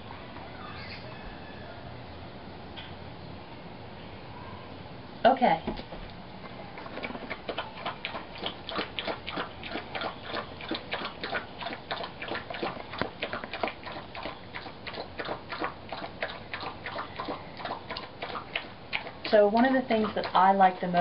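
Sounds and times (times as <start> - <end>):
dog eating wet food: 6.4 - 21.0.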